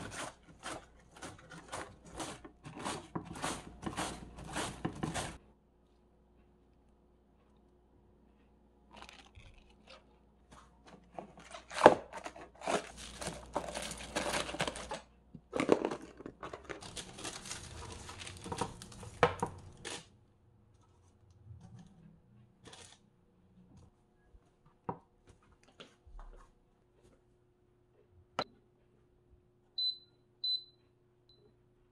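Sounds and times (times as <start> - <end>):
parchment paper tearing and crinkling: 11.0 - 15.0, 16.8 - 20.1.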